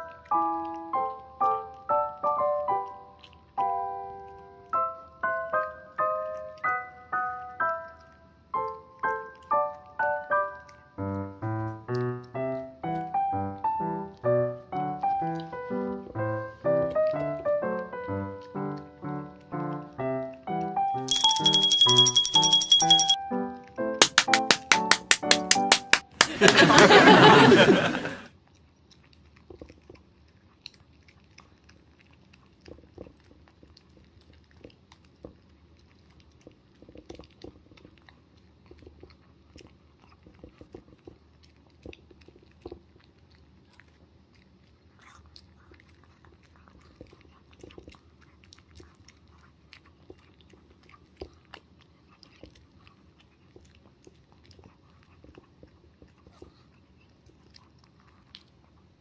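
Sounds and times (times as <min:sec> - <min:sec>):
dog chewing and crunching: 0:00.0 - 0:22.8, 0:28.3 - 0:59.0
teeth clicking against dish: 0:24.0 - 0:26.5.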